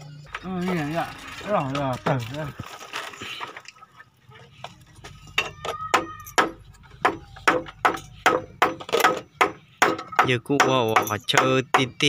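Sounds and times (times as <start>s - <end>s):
hammer striking nail into wood: 6.0s - 12.0s.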